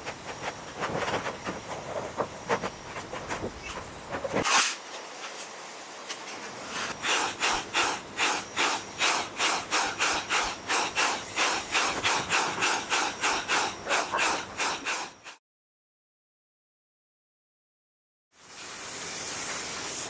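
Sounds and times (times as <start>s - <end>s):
power drill boring sheet metal: 6.9s - 15.4s.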